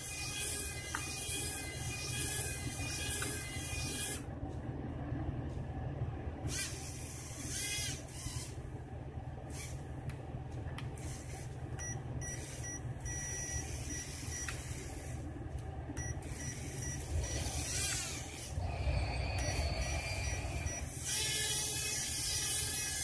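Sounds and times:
small propeller motor buzzing: 0.0s - 4.2s, 6.5s - 8.6s, 9.5s - 9.8s, 11.0s - 11.5s, 12.2s - 15.2s, 16.2s - 23.0s.

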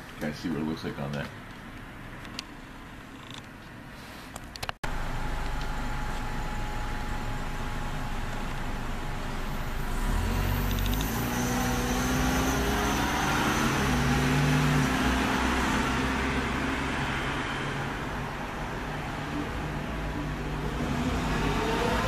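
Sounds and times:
vehicle engine passing: 4.8s - 22.0s.

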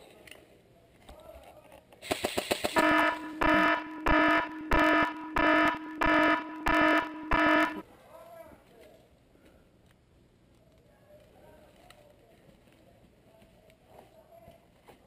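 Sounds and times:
rapid burst of clicks: 2.0s - 2.8s
buzzing electronic warning alarm: 2.8s - 7.8s.

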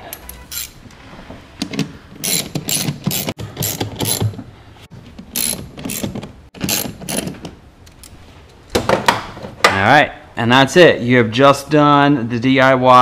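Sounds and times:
hand ratchet clicking: 2.2s - 4.2s, 5.4s - 7.3s.

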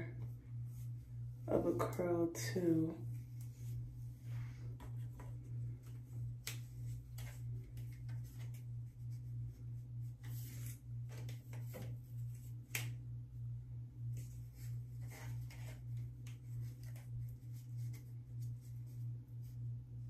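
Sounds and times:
pulsing low hum: 0.0s - 15.0s.

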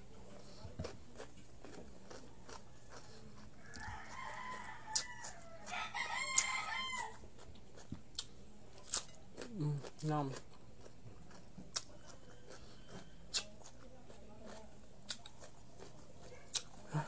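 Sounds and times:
chewing raw vegetables: 0.4s - 17.0s
rooster crowing: 3.6s - 7.2s.

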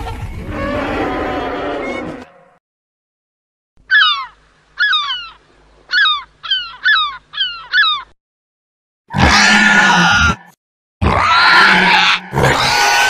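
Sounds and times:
toy screeching calls: 3.9s - 8.1s.

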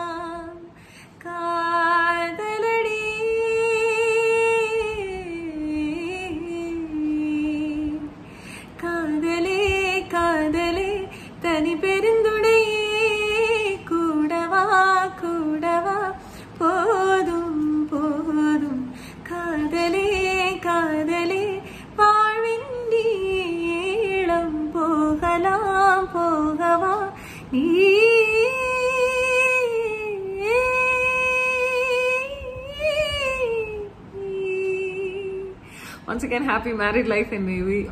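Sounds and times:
breaths: 0.7s - 1.2s, 8.2s - 8.8s, 11.1s - 11.4s, 18.9s - 19.2s, 21.6s - 22.0s, 27.2s - 27.5s, 35.6s - 36.1s
woman singing solo: 8.8s - 36.1s.

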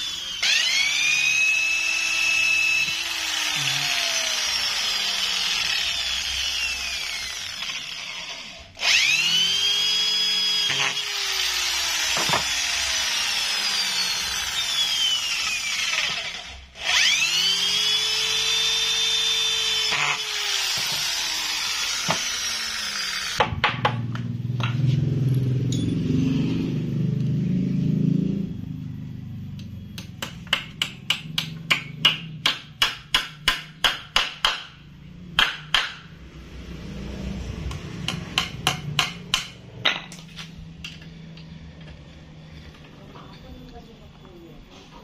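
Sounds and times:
power drill spinning down: 0.0s - 23.4s.

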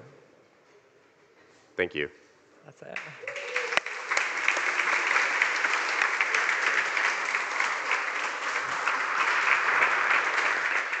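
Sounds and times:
audience applauding: 3.0s - 11.0s.

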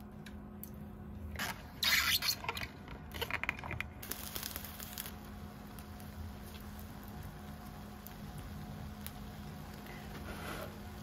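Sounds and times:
food rustles and scrapes: 10.1s - 10.8s.

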